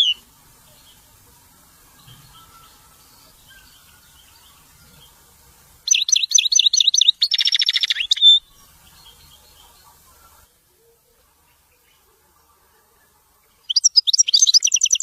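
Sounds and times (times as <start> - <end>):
goldfinch singing: 0.0 - 1.2, 1.9 - 10.5, 13.4 - 15.0.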